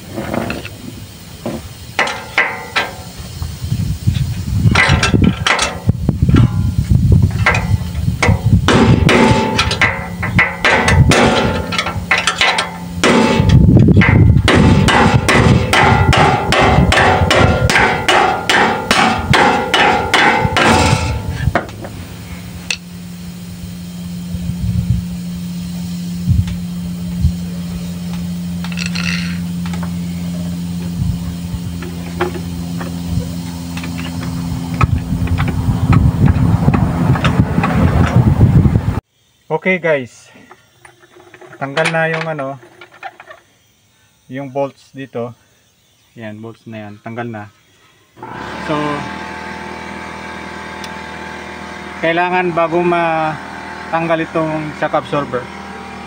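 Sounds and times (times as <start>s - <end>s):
steady low hum: 0.0s - 56.0s
hammer striking steel: 2.0s - 3.2s, 7.4s - 21.8s.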